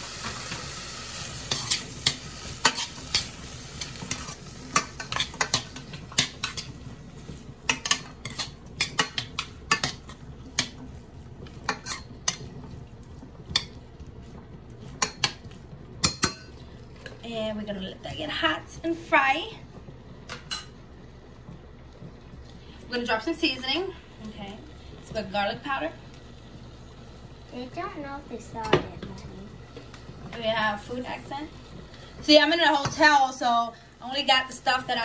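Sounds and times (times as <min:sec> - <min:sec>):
frying sizzle: 0:00.0 - 0:35.0
metal spoon clinking and scraping pan: 0:01.5 - 0:06.8, 0:07.7 - 0:10.8, 0:11.7 - 0:12.5.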